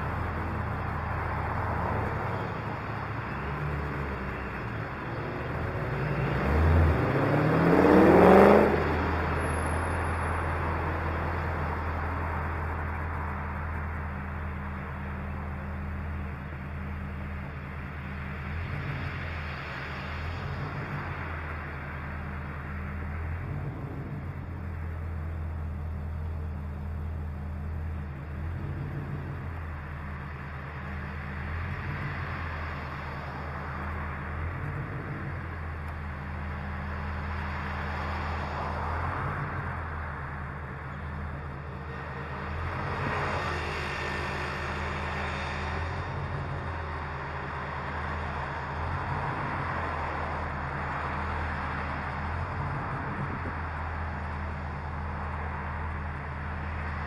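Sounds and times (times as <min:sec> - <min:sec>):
car engine idling: 0:00.0 - 0:57.0
road traffic passing: 0:00.0 - 0:57.0.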